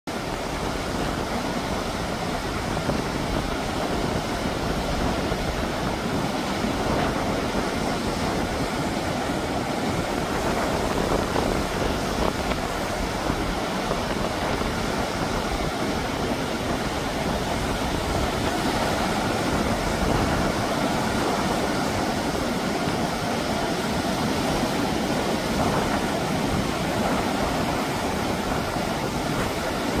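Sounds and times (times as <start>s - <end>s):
heavy surf breaking on rocks: 0.1s - 30.0s.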